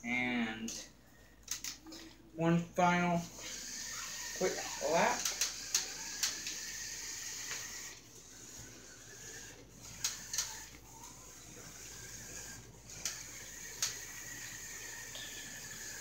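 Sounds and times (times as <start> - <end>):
toy hovercraft motor whine: 3.2 - 16.0.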